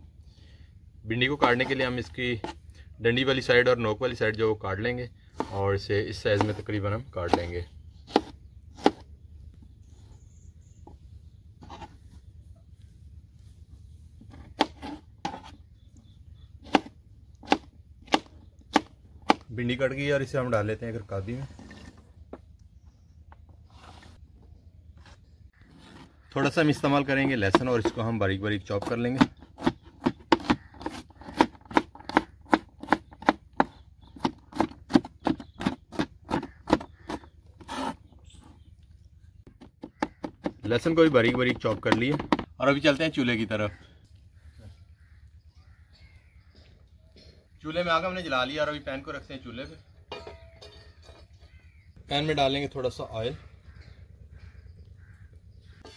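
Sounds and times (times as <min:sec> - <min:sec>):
knife scraping board: 0:11.6 - 0:12.0, 0:14.3 - 0:15.6, 0:21.4 - 0:22.1, 0:23.7 - 0:24.2, 0:25.0 - 0:26.2, 0:36.4 - 0:38.0
knife chopping okra: 0:16.7 - 0:19.5, 0:28.8 - 0:38.0.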